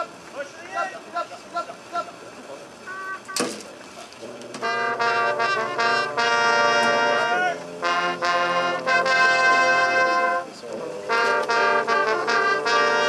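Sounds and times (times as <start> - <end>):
brass band playing chords: 4.2 - 13.0.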